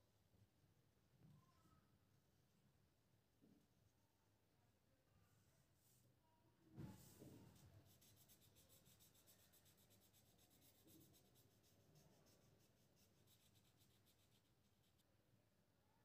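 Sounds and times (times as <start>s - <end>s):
pen scratching on paper: 7.5s - 15.0s.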